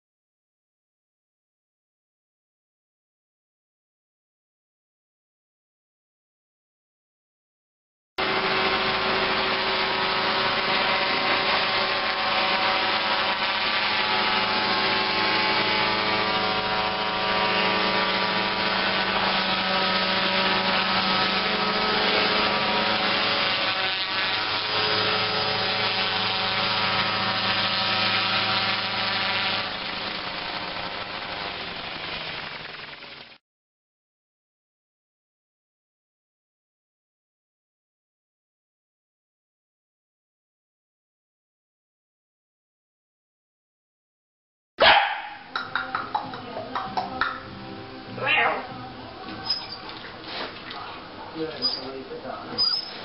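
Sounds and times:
helicopter engine and rotor drone: 0:08.2 - 0:33.4.

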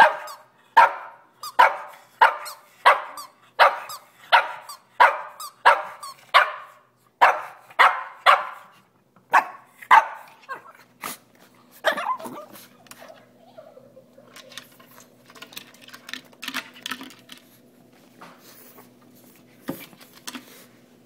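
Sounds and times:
small dog barking: 0:00.0 - 0:08.7, 0:09.3 - 0:10.4, 0:11.8 - 0:12.4.

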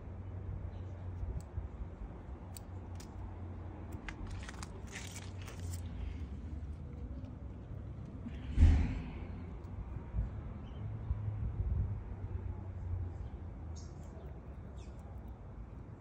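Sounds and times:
low steady rumble: 0:00.0 - 0:13.4
light crunching and rustling: 0:02.4 - 0:08.5.

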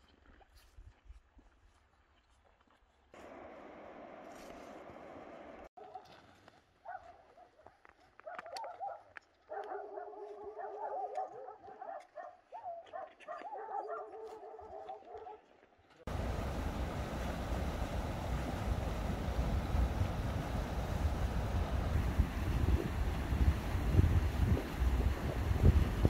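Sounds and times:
mountain stream rushing: 0:16.1 - 0:26.0.

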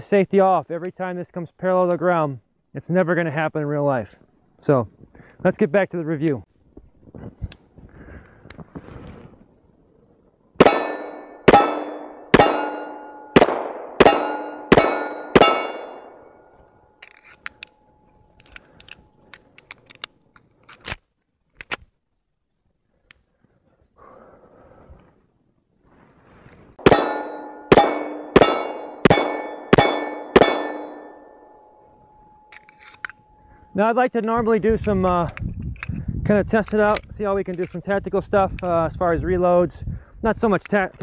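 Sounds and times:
pistol shots: 0:10.6 - 0:16.3, 0:26.8 - 0:31.4
steel target ringing: 0:10.6 - 0:17.0, 0:26.8 - 0:33.8.

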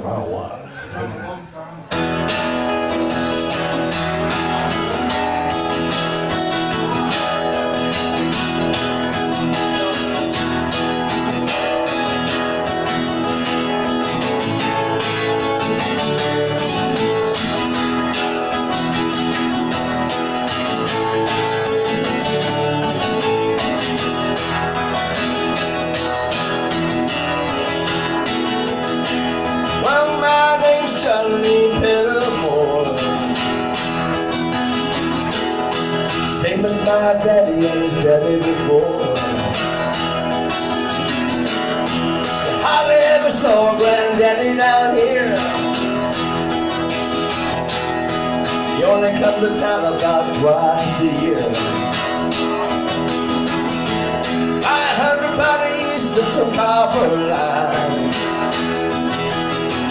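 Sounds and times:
acoustic guitar strumming: 0:00.0 - 0:59.9
man singing: 0:29.4 - 0:34.1, 0:36.1 - 0:40.0, 0:42.2 - 0:46.2, 0:48.4 - 0:52.5, 0:54.6 - 0:58.8.

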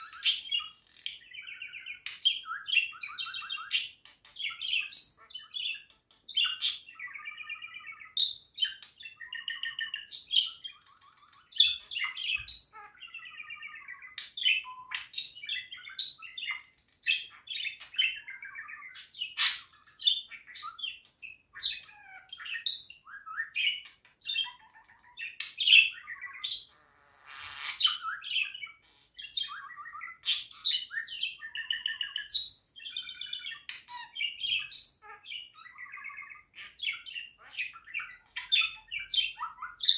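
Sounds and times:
scratchy rasp: 0:26.8 - 0:27.9.

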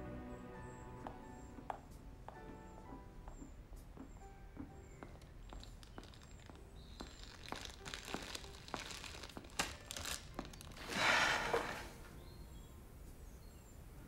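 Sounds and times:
chip bag crinkling: 0:05.2 - 0:11.0.

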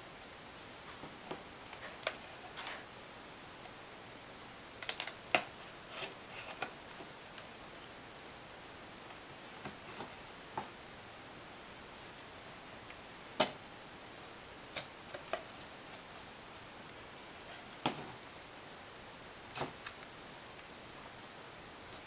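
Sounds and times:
faint room hiss: 0:00.0 - 0:22.0
card folding clicks and snaps: 0:04.8 - 0:05.5.

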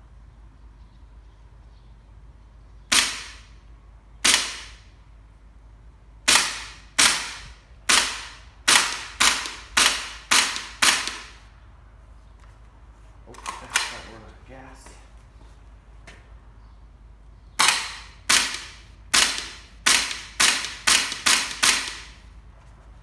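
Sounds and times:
airsoft rifle shots: 0:02.9 - 0:03.6, 0:04.2 - 0:04.9, 0:06.2 - 0:11.4, 0:13.4 - 0:14.2, 0:17.6 - 0:22.3.

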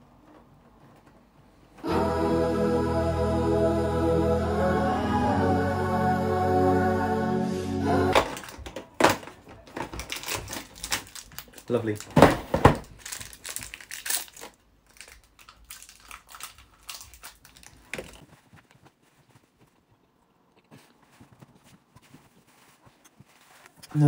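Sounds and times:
chocolate wrapper crinkling: 0:10.0 - 0:12.2, 0:12.8 - 0:18.4.

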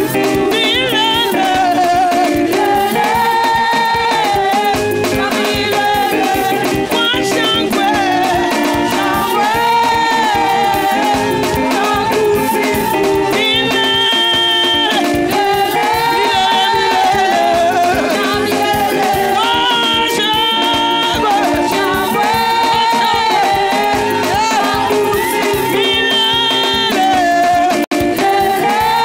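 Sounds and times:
held instrumental chords: 0:00.0 - 0:29.0
rattling percussion beat: 0:00.0 - 0:29.0
choir singing: 0:01.2 - 0:29.0.

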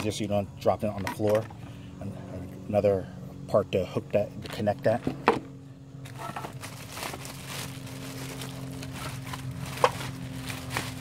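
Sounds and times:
steady low hum: 0:00.0 - 0:11.0
plastic bag crinkling: 0:06.1 - 0:11.0.

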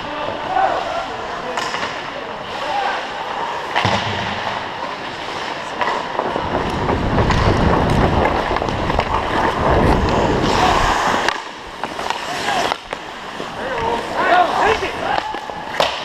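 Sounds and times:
skate blades scraping on ice: 0:04.8 - 0:16.0
wind rumbling on camera: 0:06.1 - 0:11.2.

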